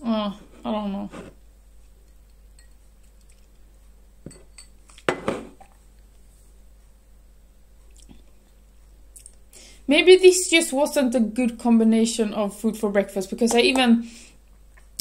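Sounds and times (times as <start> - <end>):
tableware clinking on table: 4.2 - 5.6.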